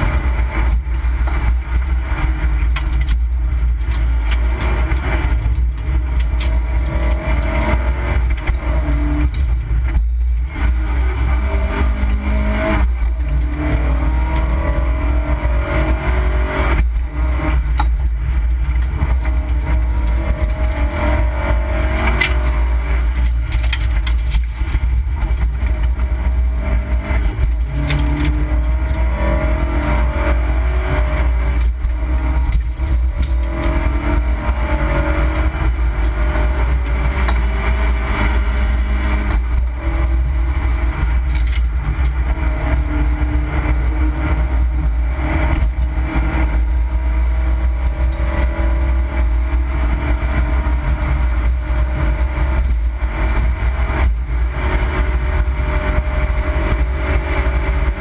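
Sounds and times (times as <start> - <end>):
rally car engine revving: 0.0 - 58.0
rumble of tyres on road: 0.0 - 58.0.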